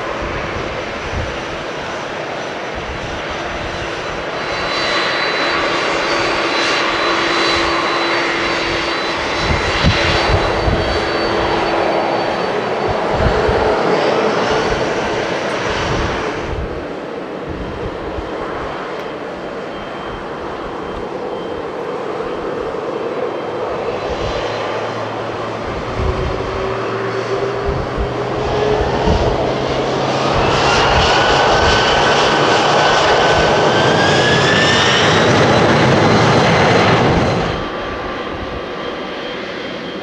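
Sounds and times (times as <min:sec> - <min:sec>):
jet engines running: 0:00.0 - 0:40.0
rising engine whine: 0:00.0 - 0:40.0.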